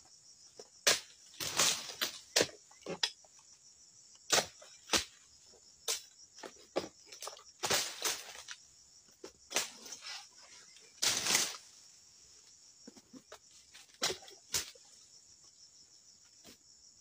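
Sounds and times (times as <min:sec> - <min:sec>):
blade chopping stalks: 0:00.8 - 0:03.0, 0:04.3 - 0:05.2.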